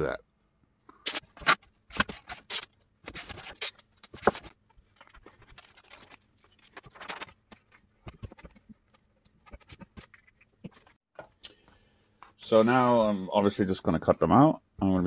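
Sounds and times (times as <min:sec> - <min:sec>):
paper rustling: 0:01.1 - 0:11.0.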